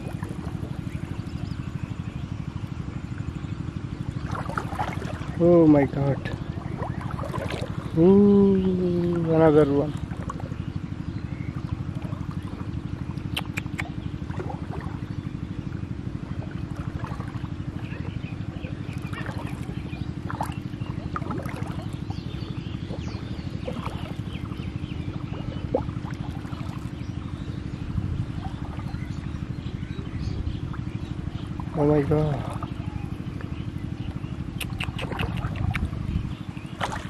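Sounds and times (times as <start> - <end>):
small engine running: 0.0 - 37.0
faint chirps and ticks: 33.4 - 36.7.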